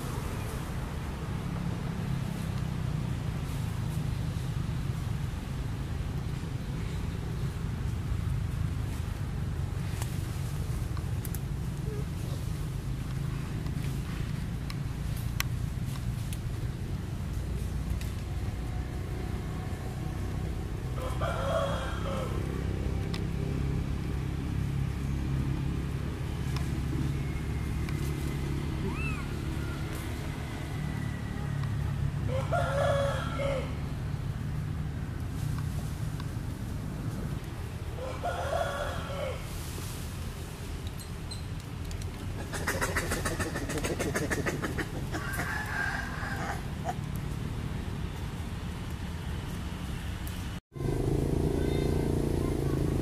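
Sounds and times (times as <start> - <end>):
vehicle engine rumbling: 0.0 - 38.3, 39.0 - 53.0
rooster crowing: 21.0 - 22.4, 32.3 - 33.8, 38.0 - 39.4, 45.1 - 47.0
sharp high clicking calls: 40.9 - 45.6
low rumble: 50.7 - 53.0.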